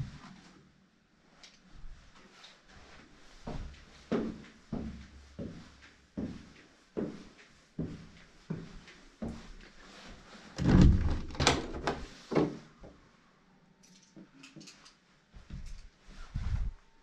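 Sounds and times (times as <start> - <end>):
door handle and latch rattling: 10.6 - 12.0.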